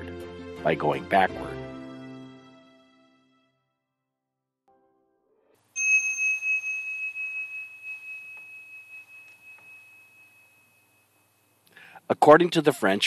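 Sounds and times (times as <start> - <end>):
bell ringing high pitch: 5.8 - 11.6.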